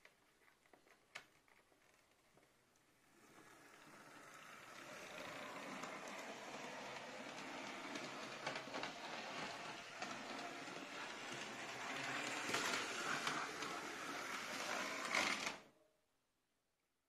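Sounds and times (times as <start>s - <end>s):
model train motor whirring: 3.0s - 15.6s
wheels clicking on track: 3.1s - 15.6s.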